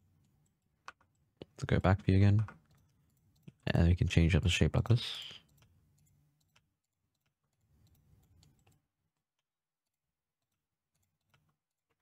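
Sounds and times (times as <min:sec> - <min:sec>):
computer mouse clicks: 0:00.2 - 0:01.6, 0:02.4 - 0:03.6, 0:05.2 - 0:12.0
keyboard clicks: 0:00.2 - 0:03.7, 0:05.1 - 0:12.0.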